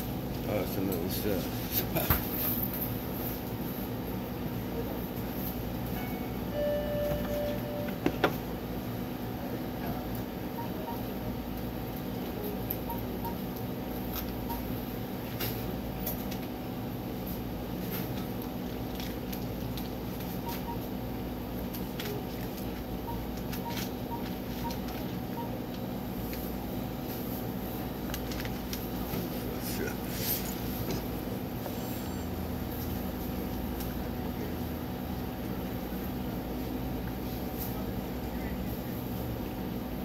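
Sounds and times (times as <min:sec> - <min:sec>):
refrigerator and air conditioning hum: 0:00.0 - 0:40.0
faint short beeps: 0:06.5 - 0:08.0.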